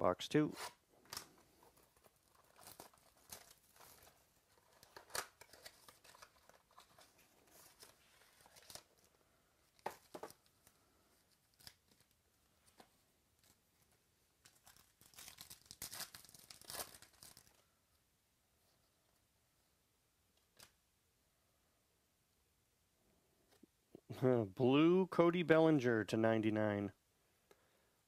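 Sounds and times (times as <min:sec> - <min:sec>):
foil wrappers crinkling: 0:01.0 - 0:12.8, 0:13.4 - 0:17.6.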